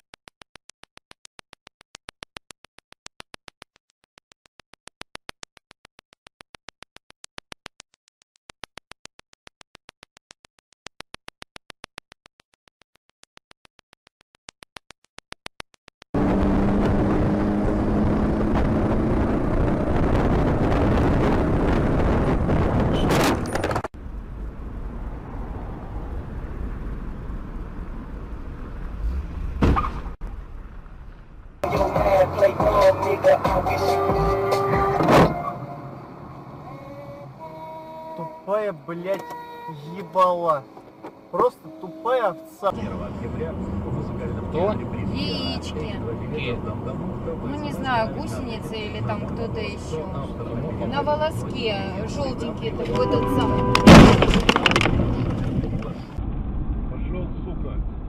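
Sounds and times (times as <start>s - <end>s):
fast regular clicking: 0.0s - 16.2s
vehicle road noise: 16.2s - 58.0s.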